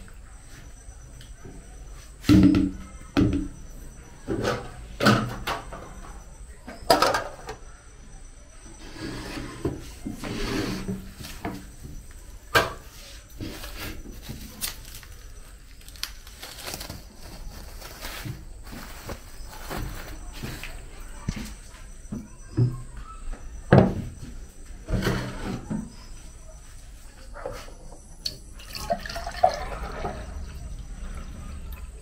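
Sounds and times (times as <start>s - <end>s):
dishes knocking on a table: 2.2s - 3.6s
dishes rubbing and scraping: 8.7s - 14.6s, 24.8s - 26.4s.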